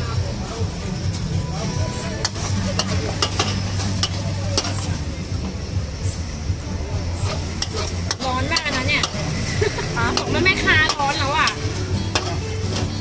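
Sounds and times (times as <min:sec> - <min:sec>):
food sizzling: 0:00.0 - 0:13.0
metal spatula scraping wok: 0:00.7 - 0:05.1, 0:07.1 - 0:13.0.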